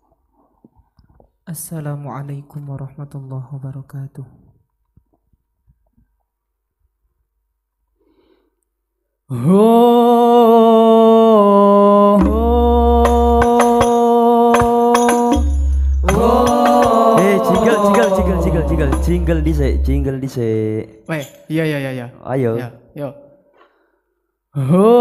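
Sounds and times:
man singing long notes: 0:09.3 - 0:20.3, 0:24.6 - 0:25.0
voices chanting: 0:12.2 - 0:20.0
frame drum strikes: 0:12.2 - 0:20.2
low hum: 0:15.4 - 0:20.2.

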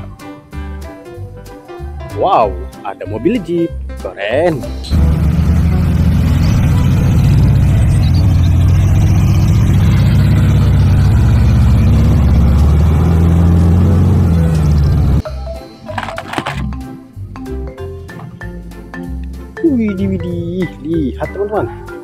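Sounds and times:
vehicle engine running under load: 0:04.9 - 0:15.2.

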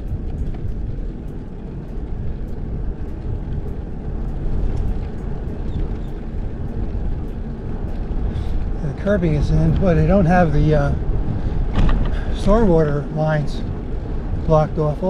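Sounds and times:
faint light ticks: 0:00.0 - 0:10.5
tyre noise on pavement: 0:00.0 - 0:15.0
wind rushing over microphone: 0:00.0 - 0:15.0.

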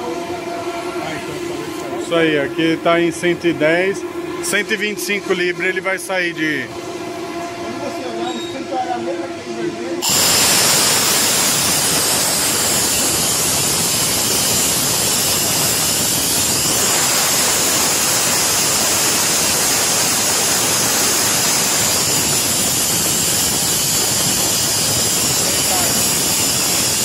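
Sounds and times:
air compressor venting hiss: 0:10.0 - 0:27.0.

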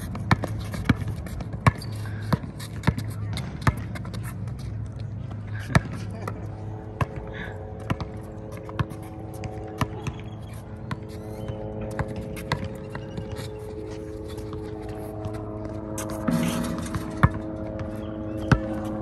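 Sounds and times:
basketball bouncing on concrete: 0:00.0 - 0:04.3, 0:07.8 - 0:13.4, 0:14.4 - 0:19.0
steady hum: 0:00.0 - 0:19.0.

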